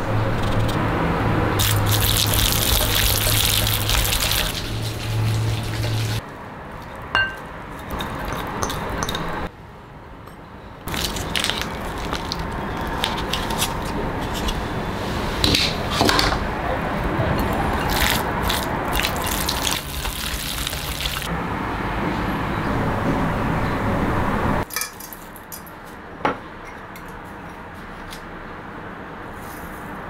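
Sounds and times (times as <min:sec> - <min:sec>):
wet squelching of meat mixed by hand: 0:01.6 - 0:06.2, 0:10.9 - 0:13.7, 0:17.8 - 0:21.3.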